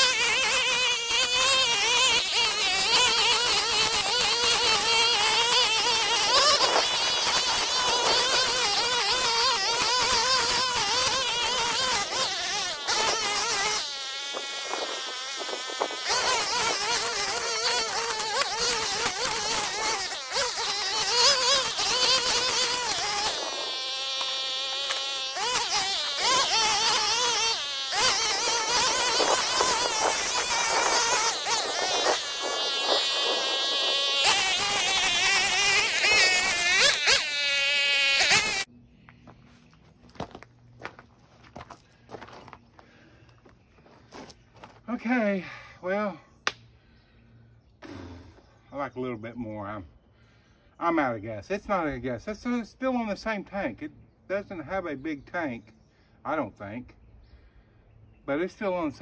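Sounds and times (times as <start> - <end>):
string trimmer cutting weeds: 0.0 - 38.7.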